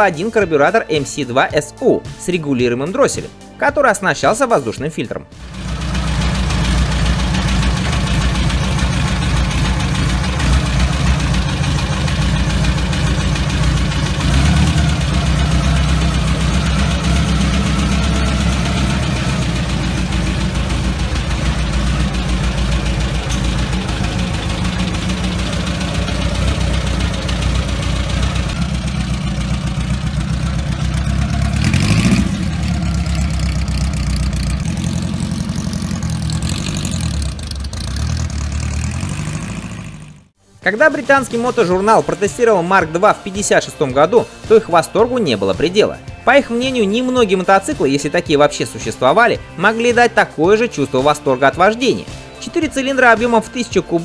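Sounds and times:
motorcycle engine idling: 0:05.4 - 0:40.4.

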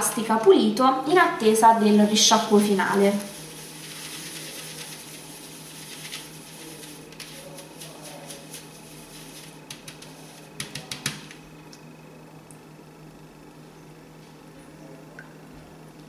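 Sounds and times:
brush scrubbing on plastic: 0:02.2 - 0:11.4
brush swished in water: 0:02.9 - 0:10.6
brush clicking against plastic: 0:09.6 - 0:11.4.

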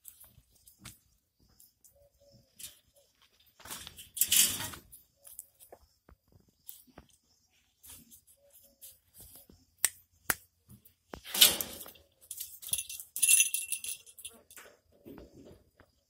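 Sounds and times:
dog collar bell jingling: 0:12.3 - 0:14.5.

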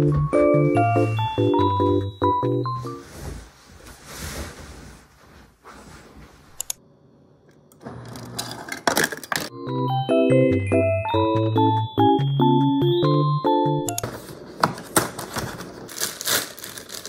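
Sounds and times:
bedding rustling: 0:00.1 - 0:06.6
ice dispenser whirring: 0:07.7 - 0:09.5.

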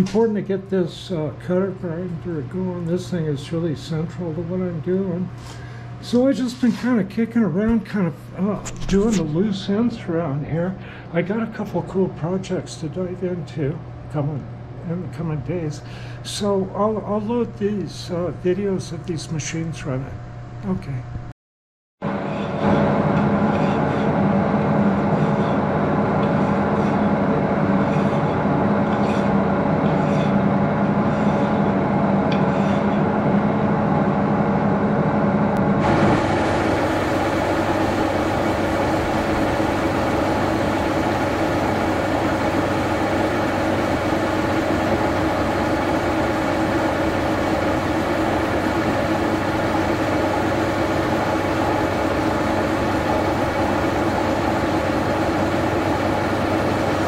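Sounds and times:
lathe humming: 0:22.0 - 0:57.0
milling machine cutting metal: 0:22.1 - 0:33.6, 0:35.6 - 0:57.0
hand file scraping metal: 0:23.4 - 0:24.2, 0:24.8 - 0:25.6, 0:26.2 - 0:27.1, 0:27.8 - 0:30.4, 0:31.0 - 0:33.1.

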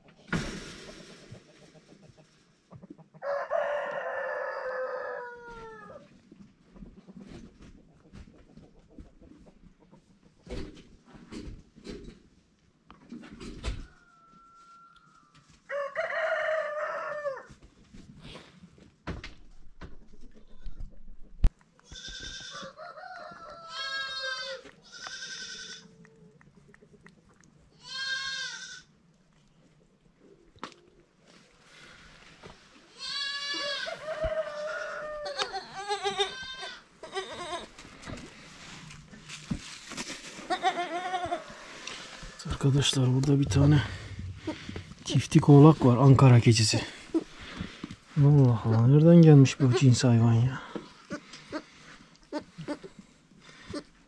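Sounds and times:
rooster crowing: 0:03.2 - 0:06.0, 0:13.9 - 0:17.5, 0:22.5 - 0:24.6, 0:33.6 - 0:35.6
goats bleating: 0:21.9 - 0:22.6, 0:23.7 - 0:25.9, 0:27.7 - 0:28.9, 0:32.9 - 0:34.0, 0:35.2 - 0:37.7.

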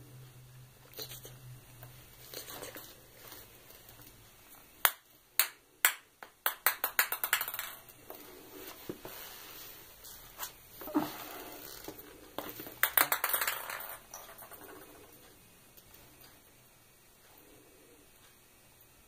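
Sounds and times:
ping-pong ball bouncing on tile: 0:04.8 - 0:07.9, 0:12.7 - 0:14.6.

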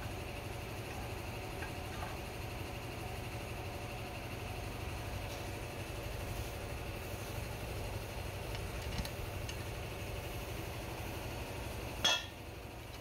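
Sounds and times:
steady low hum: 0:00.0 - 0:13.0
sharp knock with ring: 0:12.0 - 0:12.4.

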